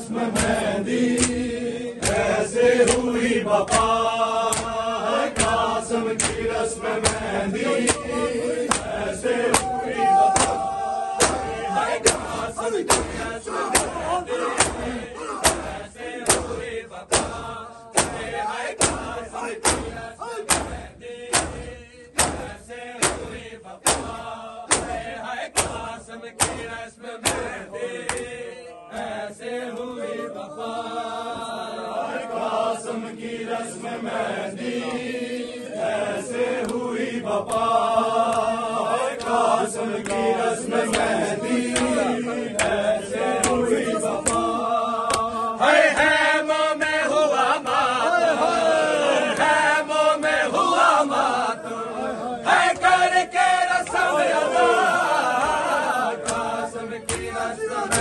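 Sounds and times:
men chanting together: 0.0s - 58.0s
chest-beating slaps: 0.3s - 29.1s, 40.0s - 40.3s, 41.7s - 42.0s, 43.4s - 44.5s, 45.1s - 45.3s, 56.2s - 58.0s.

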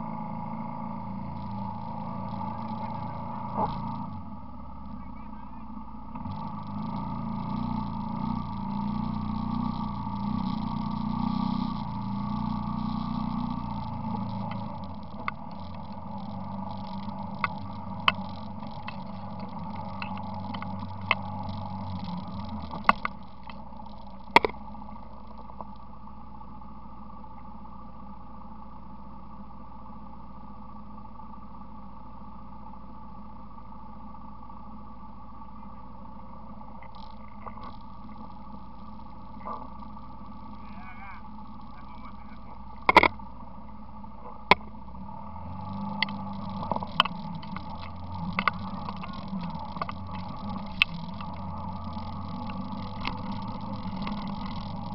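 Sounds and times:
atv engine running: 0.0s - 54.9s
sharp clicks and knocks: 6.1s - 24.6s, 42.8s - 43.2s, 45.6s - 54.9s.

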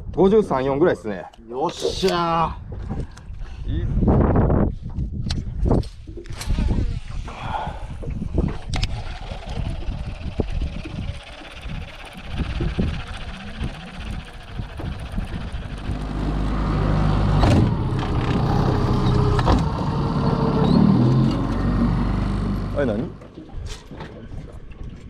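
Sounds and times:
outboard motor running: 6.4s - 25.0s
irregular low rumble: 9.7s - 25.0s.

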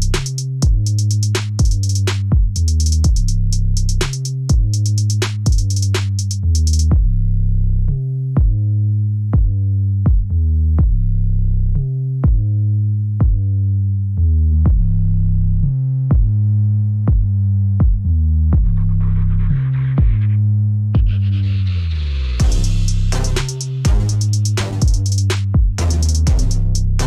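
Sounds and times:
drum machine beat: 0.0s - 7.1s, 8.4s - 8.6s, 9.4s - 11.0s, 12.2s - 12.5s, 13.2s - 13.4s, 16.1s - 16.4s, 17.1s - 19.1s, 20.0s - 20.2s, 21.0s - 21.3s, 22.4s - 27.0s
deep synthesizer bass line: 0.0s - 27.0s.

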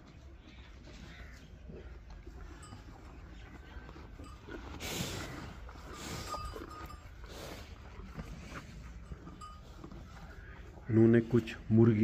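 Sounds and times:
cows moving about: 0.0s - 12.0s
cow bell clink: 2.2s - 10.6s.

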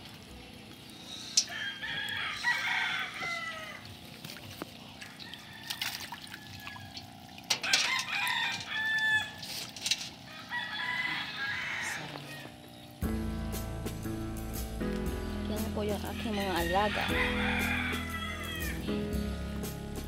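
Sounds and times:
roosters crowing: 1.4s - 4.0s, 5.0s - 9.5s, 10.1s - 12.8s, 16.0s - 18.9s
water splashing in a steel basin: 2.6s - 10.3s.

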